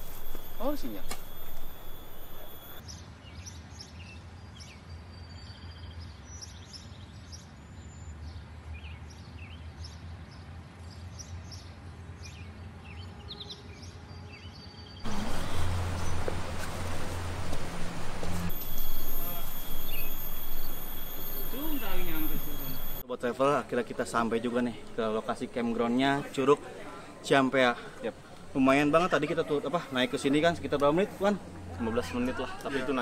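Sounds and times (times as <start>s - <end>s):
birds chirping: 0.0s - 2.8s, 15.0s - 23.0s
low steady hum: 0.0s - 2.8s, 15.0s - 23.0s.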